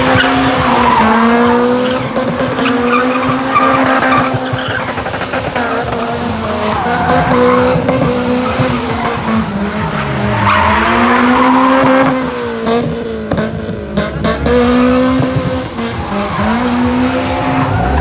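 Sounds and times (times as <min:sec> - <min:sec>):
tyres squealing on tarmac: 0:00.0 - 0:12.2
car engine revving high: 0:00.0 - 0:18.0.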